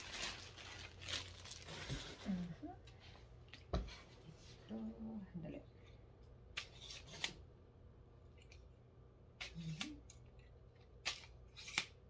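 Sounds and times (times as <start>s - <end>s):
tripod clicks and snaps: 11.0s - 12.0s.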